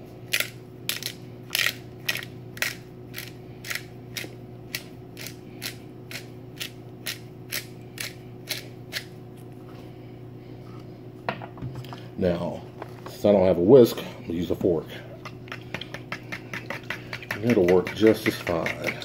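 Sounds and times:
pepper grinder rasping: 0.3 - 9.1, 15.2 - 19.0.

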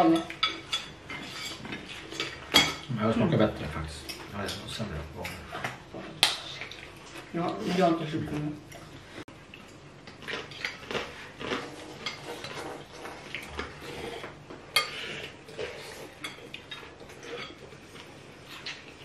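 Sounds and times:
cutlery clinking against ceramic bowls: 0.0 - 2.9.

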